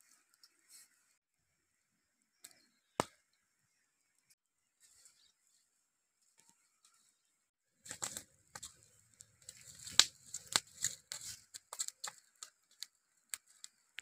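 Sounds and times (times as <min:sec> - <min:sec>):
embers crackling and rustling: 0:07.8 - 0:14.0.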